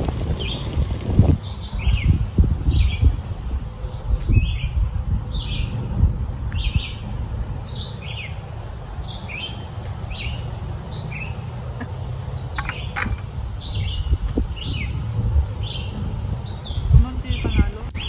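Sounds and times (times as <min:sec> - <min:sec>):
wind rumbling on microphone: 0:00.0 - 0:18.0
songbird chirping: 0:03.8 - 0:18.0.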